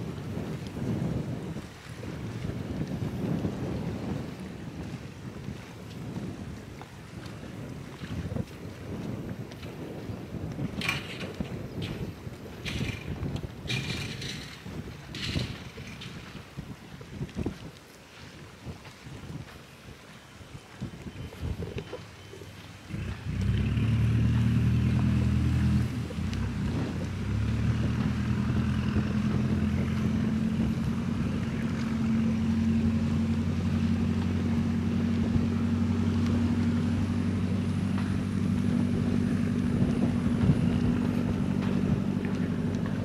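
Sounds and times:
engine humming: 21.8 - 43.0.

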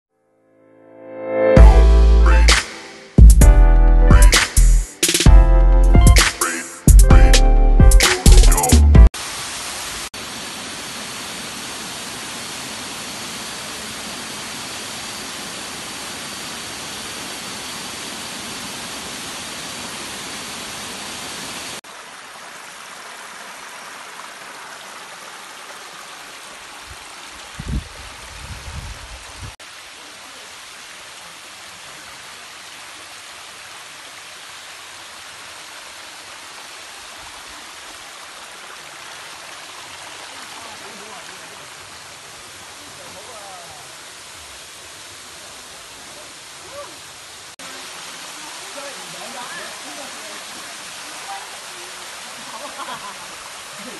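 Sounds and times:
water pouring over rocks: 9.2 - 53.9
cascade splashing into pool: 29.6 - 46.1.

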